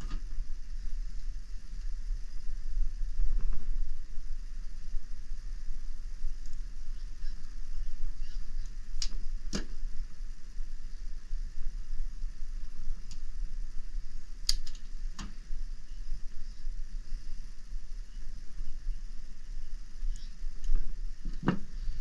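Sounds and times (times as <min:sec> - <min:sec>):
steady low hum: 0:00.0 - 0:22.0
wire strippers clicking: 0:08.6 - 0:09.7, 0:14.4 - 0:15.3.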